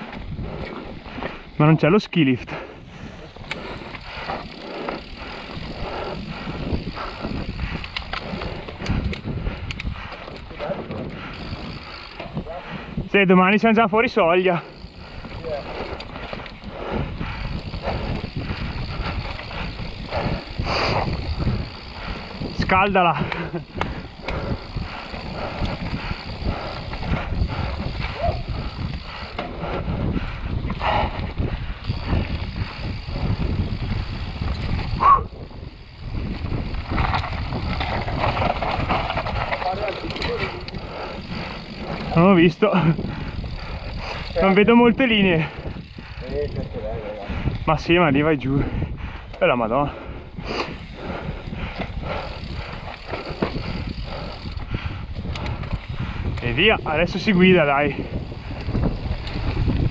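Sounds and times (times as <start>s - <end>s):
wind on microphone: 0.0s - 1.6s, 2.4s - 13.3s, 14.6s - 59.9s
bike clacking and rattling: 0.0s - 59.9s
tyres rolling over dirt: 36.6s - 44.4s.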